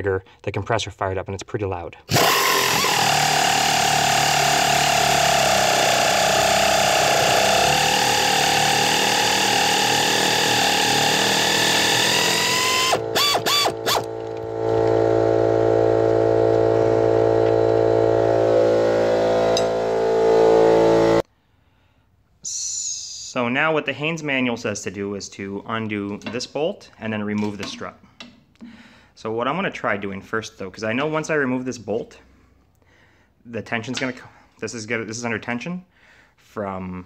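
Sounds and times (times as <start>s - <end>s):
air compressor running: 2.1s - 21.2s
air ratchet whining: 2.1s - 21.2s.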